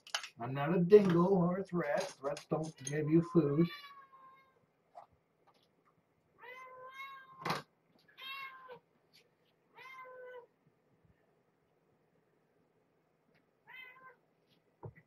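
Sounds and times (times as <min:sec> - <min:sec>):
cat meowing: 0:03.7 - 0:04.6, 0:06.4 - 0:07.4, 0:08.1 - 0:08.8, 0:09.7 - 0:10.5, 0:13.6 - 0:14.2.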